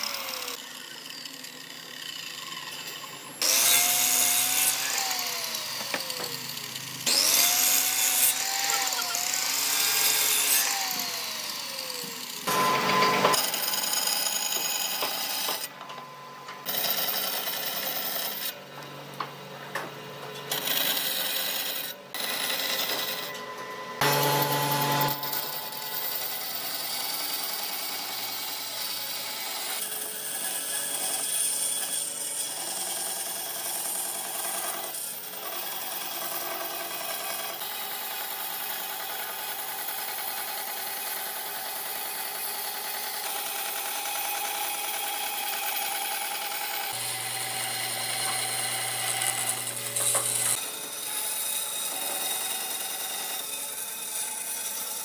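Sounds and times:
bandsaw cutting board: 0:00.0 - 0:18.6, 0:20.4 - 0:55.0
circular saw blade winding down: 0:24.0 - 0:31.2.

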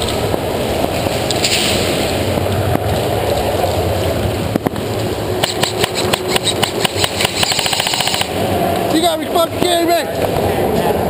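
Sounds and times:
steady rushing noise: 0:00.0 - 0:11.0
airsoft guns firing: 0:05.4 - 0:08.4.

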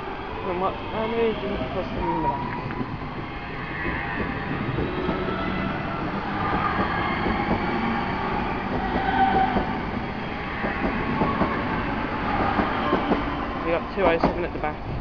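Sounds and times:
train wheels rumbling on rail: 0:00.0 - 0:15.0.

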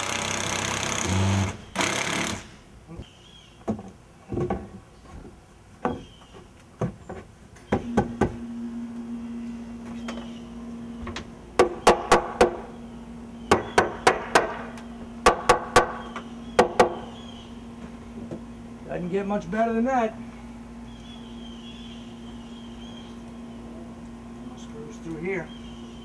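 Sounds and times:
hammer striking wood: 0:11.6 - 0:12.6, 0:13.5 - 0:17.1.

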